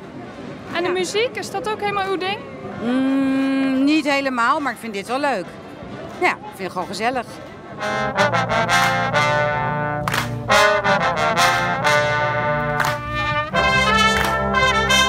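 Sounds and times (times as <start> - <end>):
street brass band playing: 6.1 - 15.0
trumpets and trombones: 7.7 - 15.0.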